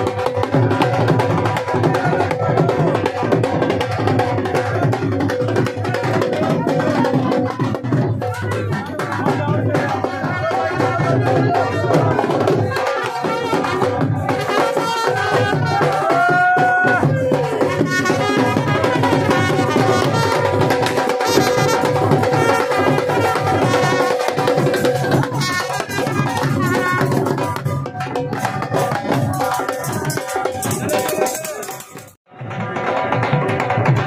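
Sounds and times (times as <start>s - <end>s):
dhol drums beating: 0.0s - 34.0s
trumpet playing a melody: 12.9s - 16.1s, 17.8s - 24.7s, 25.3s - 27.6s.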